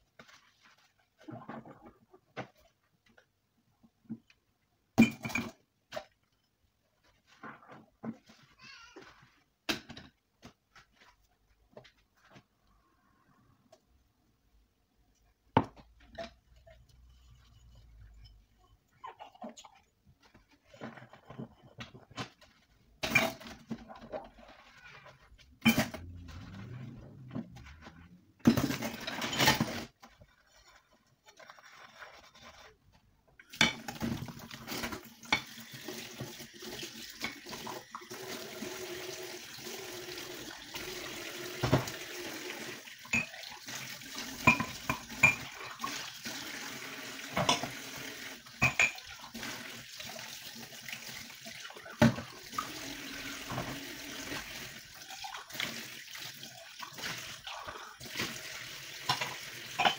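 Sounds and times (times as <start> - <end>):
tap running water: 33.4 - 59.9
crockery and glass clinking: 43.1 - 43.4, 44.4 - 45.5, 48.6 - 49.1, 59.1 - 59.9.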